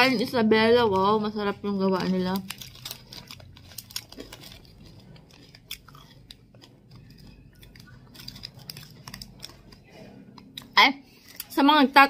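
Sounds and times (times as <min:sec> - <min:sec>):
person chewing crunchy food: 0:02.0 - 0:11.6.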